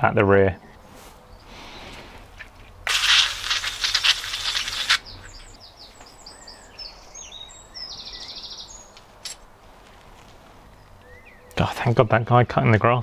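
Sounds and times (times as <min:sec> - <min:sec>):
small birds chirping: 0:00.0 - 0:02.7, 0:03.6 - 0:12.8.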